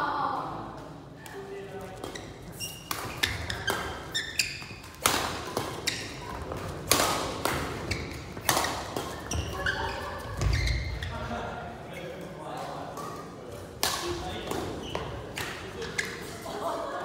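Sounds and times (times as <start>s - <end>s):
shoes squeaking on court: 1.8s - 6.8s, 7.5s - 11.3s, 14.5s - 16.5s
rackets striking shuttlecock: 4.8s - 9.6s.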